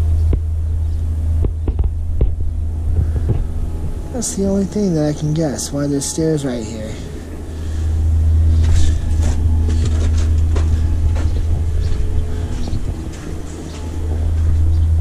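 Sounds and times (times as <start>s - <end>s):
wind buffeting microphone: 0.0s - 5.7s, 7.1s - 15.0s
footsteps on gravel: 8.5s - 14.8s.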